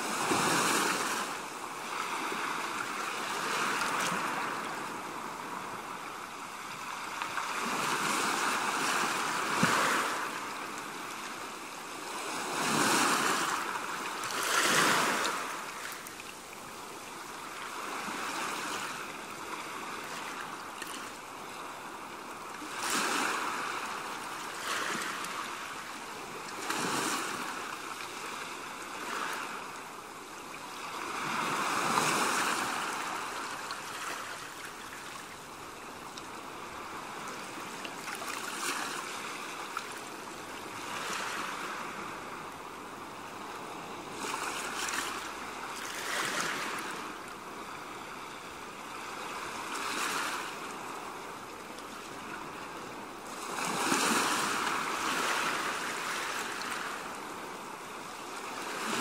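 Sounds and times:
small waves washing onto beach: 0.0s - 59.0s.

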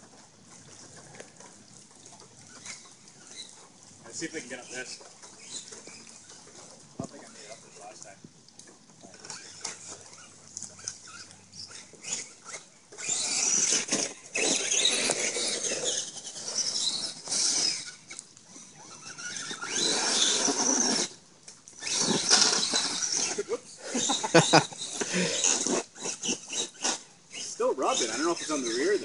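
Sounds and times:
tires scrabbling on rock: 9.2s - 21.2s, 21.8s - 29.0s.

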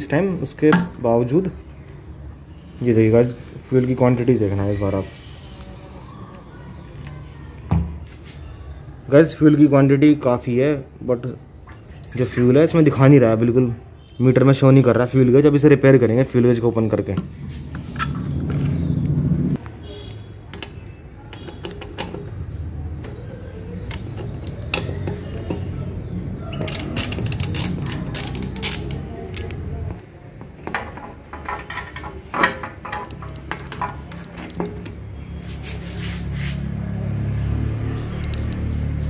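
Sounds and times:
metal tool clicking on bolts: 26.6s - 29.5s.

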